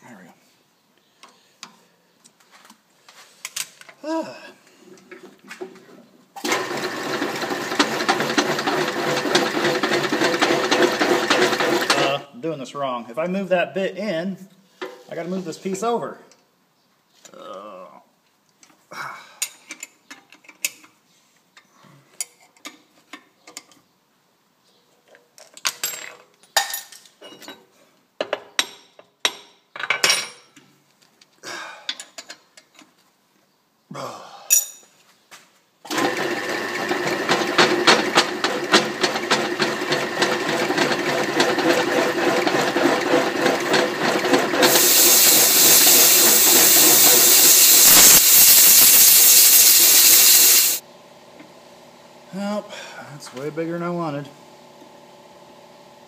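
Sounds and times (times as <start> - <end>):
milling machine spindle running: 6.5 - 12.0, 35.9 - 50.8
boring bar cutting metal: 35.9 - 50.8
loud nozzle hiss: 44.6 - 50.8.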